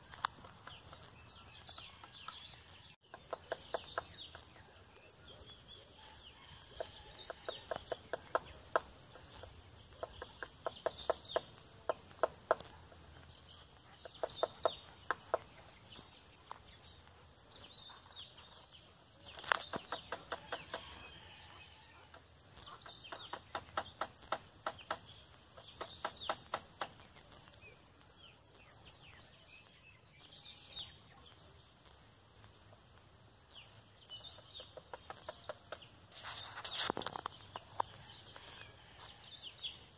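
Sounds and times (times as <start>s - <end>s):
birds calling faintly: 0.0s - 39.9s
woodpecker knocking: 3.0s - 17.6s, 19.2s - 27.6s, 34.1s - 38.9s
insect ticking: 3.0s - 29.5s, 31.0s - 39.0s.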